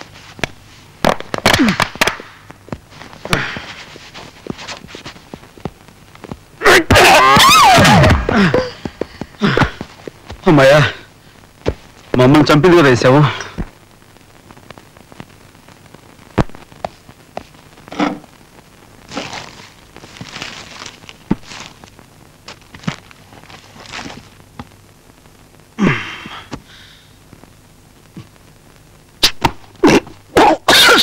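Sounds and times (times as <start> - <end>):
paper bag rustling: 19.1 - 21.9, 22.5 - 24.4.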